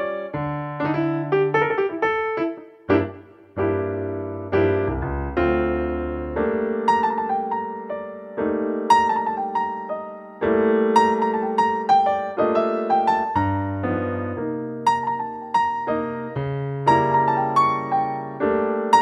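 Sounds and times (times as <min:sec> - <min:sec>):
jazz-blues piano tune: 0:00.0 - 0:19.0.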